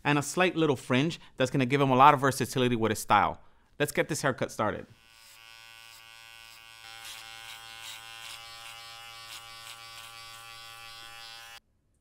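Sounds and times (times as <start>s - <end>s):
clipper blades rasping through hair: 5.0s - 11.6s
electric hair clippers buzzing: 5.0s - 11.6s.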